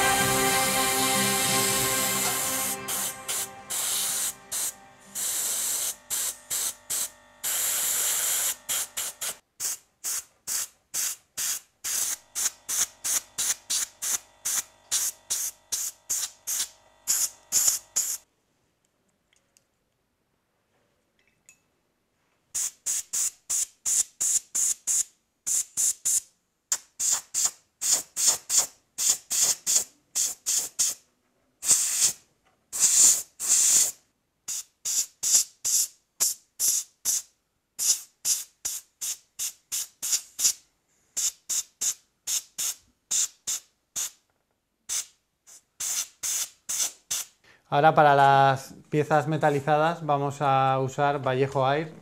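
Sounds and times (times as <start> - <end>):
airbrush spraying hiss: 0.6 - 18.2, 22.6 - 26.2, 27.0 - 31.0, 31.6 - 32.2, 32.8 - 40.6, 41.2 - 44.2, 44.9 - 47.4.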